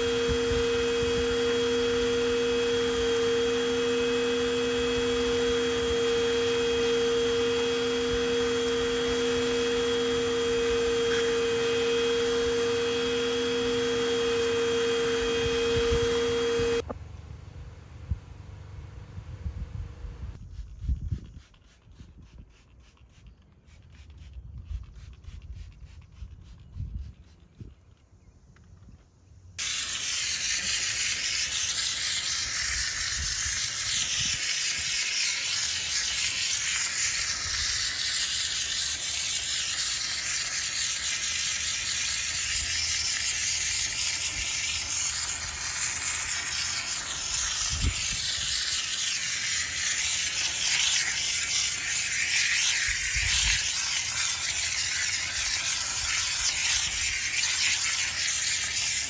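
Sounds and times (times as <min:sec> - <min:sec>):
steam cleaner hissing: 0:00.0 - 0:16.8, 0:29.6 - 0:59.0.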